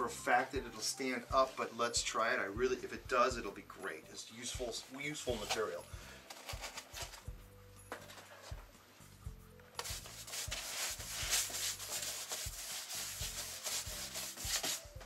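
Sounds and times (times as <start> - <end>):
paintbrush scrubbing on foam board: 9.8 - 15.0.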